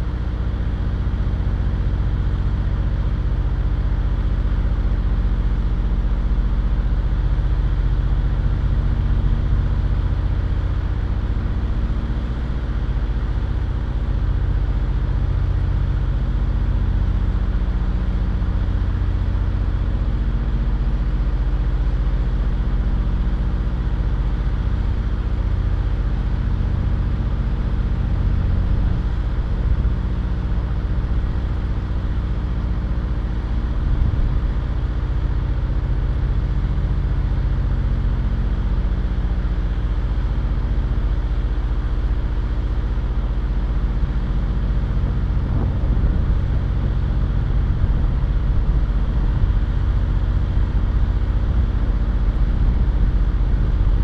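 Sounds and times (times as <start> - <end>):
vehicle engine idling: 41.0 - 54.0.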